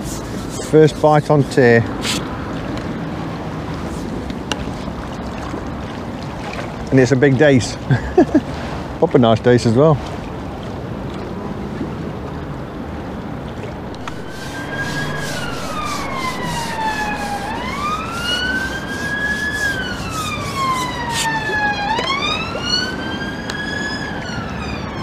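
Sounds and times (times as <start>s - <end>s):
steady background noise: 13.7s - 23.8s
emergency vehicle siren wailing: 13.8s - 25.0s.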